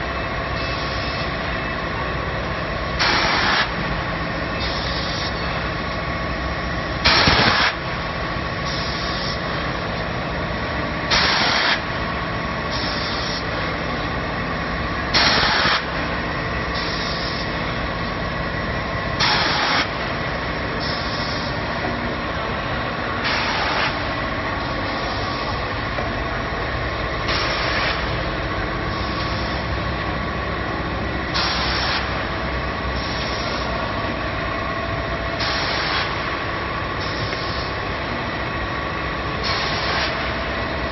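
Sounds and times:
machinery humming: 0.0 - 40.9
loud hiss: 15.1 - 16.0.

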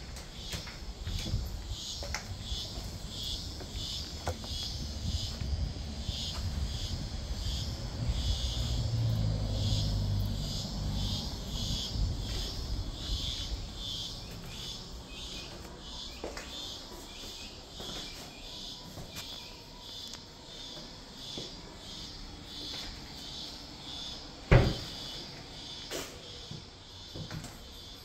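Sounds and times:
insects chirping in pulses: 0.3 - 28.0
low microphone rumble: 2.4 - 14.2.

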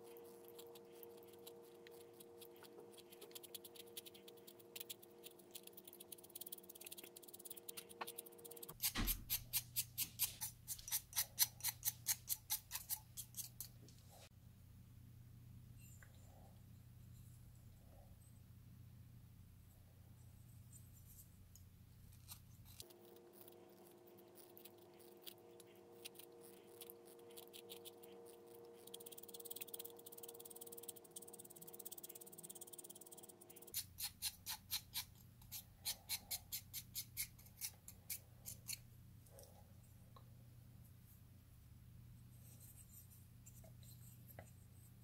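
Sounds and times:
pencil sharpener scraping: 0.6 - 13.8.

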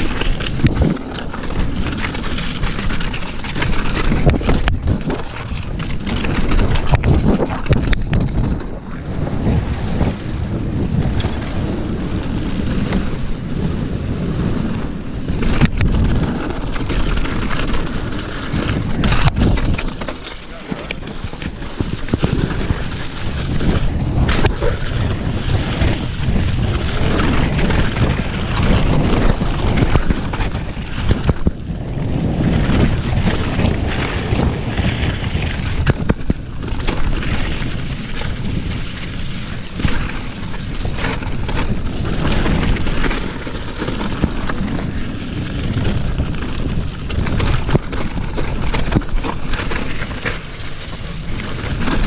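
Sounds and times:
bike rattling and knocking: 0.0 - 52.0
bike tyres rumbling: 0.0 - 52.0
wind over microphone: 0.0 - 52.0.

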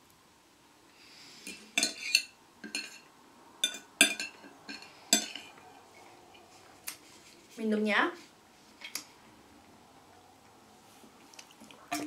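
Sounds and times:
cutlery clinking on a plate: 1.5 - 5.6.

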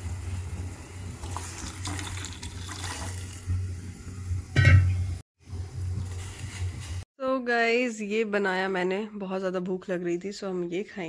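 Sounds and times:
water boiling in saucepan: 0.0 - 6.2.

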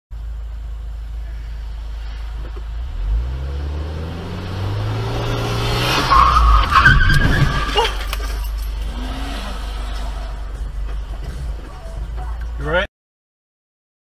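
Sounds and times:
car engine accelerating: 0.2 - 12.8
tyres screeching: 4.2 - 12.3.

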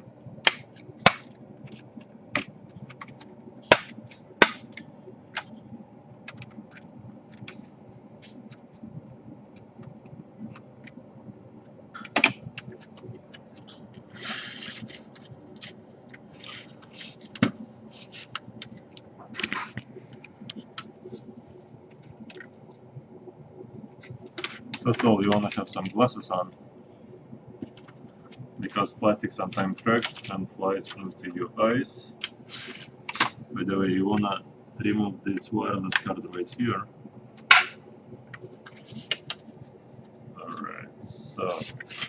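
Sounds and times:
plastic scraping: 12.0 - 21.2, 41.4 - 42.0.

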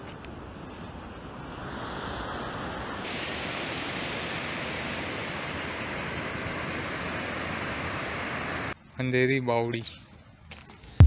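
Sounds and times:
river water rushing over rapids: 1.2 - 8.8.

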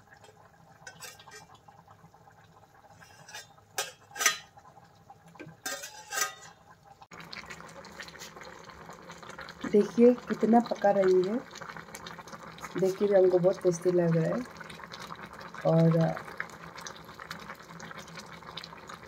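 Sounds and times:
pot boiling: 0.0 - 19.0
metal spoon scraping metal pot: 0.8 - 1.6, 2.9 - 4.5, 5.6 - 6.6.

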